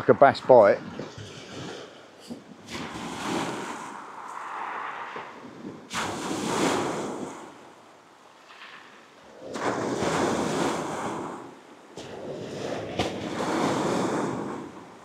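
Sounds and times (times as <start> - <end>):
waves breaking on shingle: 2.6 - 7.6.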